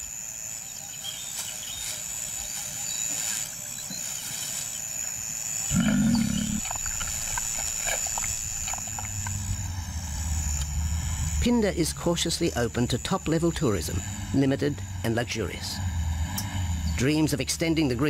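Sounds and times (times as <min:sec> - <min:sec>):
lion growling: 0:05.7 - 0:07.1.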